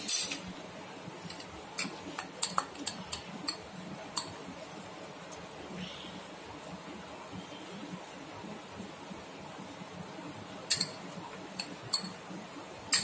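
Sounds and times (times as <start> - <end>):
spoon clinking on glass bowl: 10.7 - 12.2.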